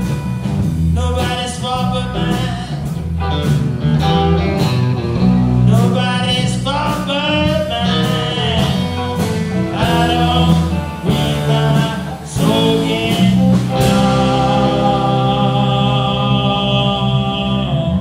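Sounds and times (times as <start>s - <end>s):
live rock band playing: 0.0s - 18.0s
heavy drum and chord hits: 7.0s - 16.2s.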